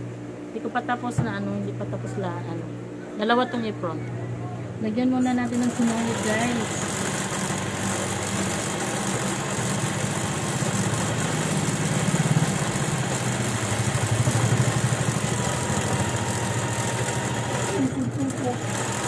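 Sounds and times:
sewing machine motor humming: 5.2s - 19.0s.

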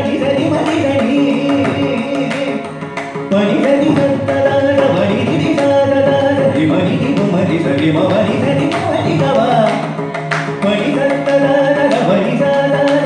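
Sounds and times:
person singing classical vocals: 0.0s - 2.6s, 10.6s - 13.0s
mridangam drum strokes: 0.0s - 13.0s
violin: 0.0s - 13.0s.

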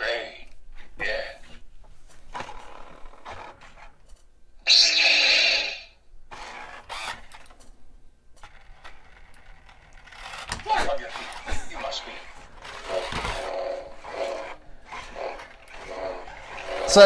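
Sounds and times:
toy motors whirring: 6.3s - 7.7s, 8.4s - 17.0s
electronic lightsaber hum: 8.7s - 17.0s.

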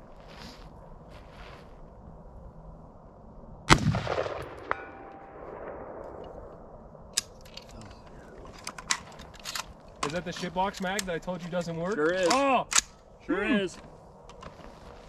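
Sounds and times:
rifle shot with echo: 3.7s - 6.7s
bullet ringing steel target: 3.8s - 6.1s.

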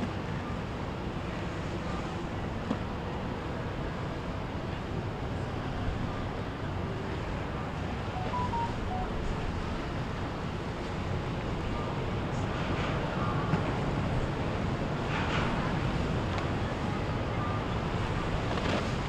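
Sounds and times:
water: 0.0s - 19.0s
boat engines rumbling: 9.1s - 19.0s.

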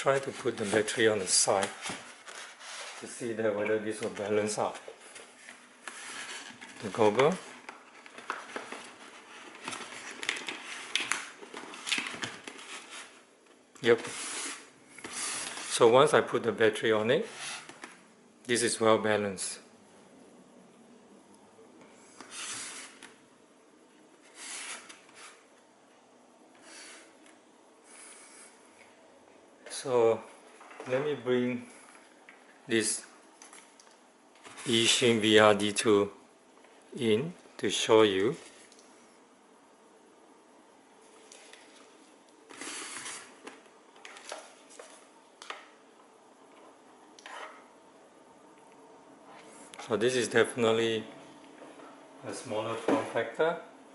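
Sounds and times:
plastic goggle rustling: 0.0s - 16.0s, 41.1s - 45.8s
foam rubbing and scraping on desk: 14.0s - 15.8s.

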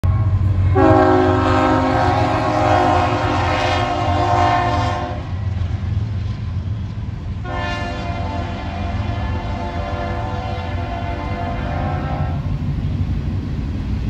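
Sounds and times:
locomotive air horn chord: 0.0s - 5.4s, 7.4s - 12.5s.

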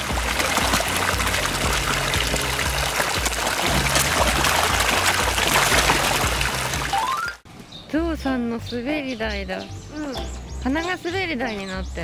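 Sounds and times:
background music with bass line: 0.0s - 7.4s
fish splashing at water surface: 0.0s - 7.4s.

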